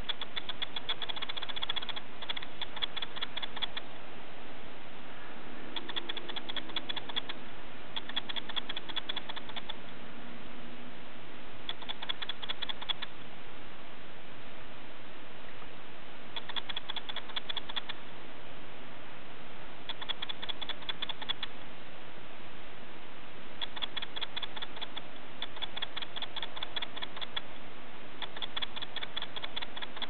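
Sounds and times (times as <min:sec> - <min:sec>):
rapid clicking: 0:00.0 - 0:03.8, 0:05.8 - 0:07.4, 0:08.0 - 0:09.8, 0:11.7 - 0:13.1, 0:16.4 - 0:18.0, 0:19.9 - 0:21.5, 0:28.2 - 0:30.0
steady hiss: 0:00.0 - 0:30.0.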